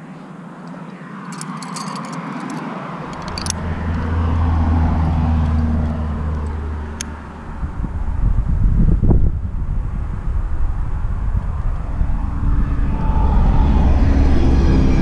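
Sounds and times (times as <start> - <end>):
vehicle passing by: 1.0 - 15.0
high metallic clinking: 1.2 - 4.1
deep engine hum: 3.0 - 15.0.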